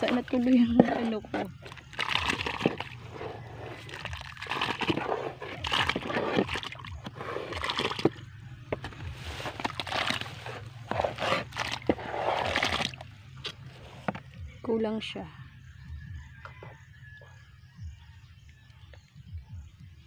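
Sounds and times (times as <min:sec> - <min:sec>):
soil splashing into muddy water: 0:00.0 - 0:03.1, 0:03.7 - 0:08.2, 0:09.2 - 0:13.0
trowel scraping soil from pot: 0:02.6 - 0:08.2, 0:08.8 - 0:13.0.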